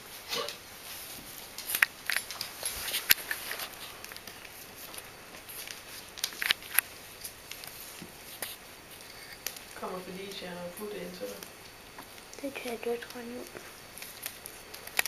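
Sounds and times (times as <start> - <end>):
puppy gnawing a rawhide chew: 13.5 - 15.0.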